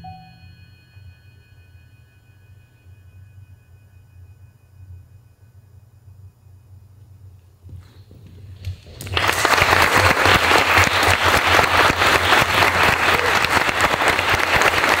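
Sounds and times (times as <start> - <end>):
audience applauding: 8.9 - 15.0.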